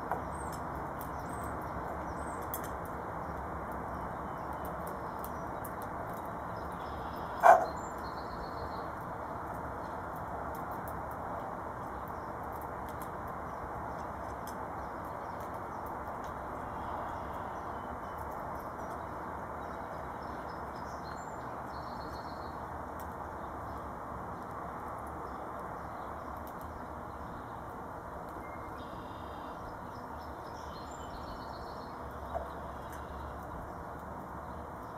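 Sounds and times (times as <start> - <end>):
distant songbird chirps: 0.0 - 8.9, 28.3 - 34.9
outdoor background noise: 0.0 - 34.9.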